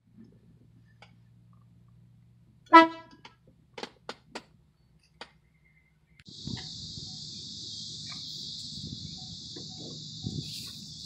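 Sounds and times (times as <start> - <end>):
air horn blasts: 2.7 - 3.2.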